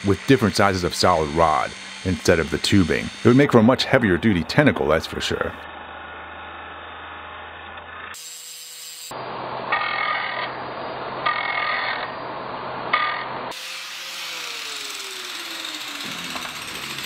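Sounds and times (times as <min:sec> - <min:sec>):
angle grinder grinding metal: 0:00.0 - 0:05.6, 0:07.9 - 0:10.6, 0:11.2 - 0:12.2, 0:12.9 - 0:17.0
grinder spinning down: 0:00.0 - 0:10.6, 0:11.2 - 0:12.2, 0:12.9 - 0:17.0.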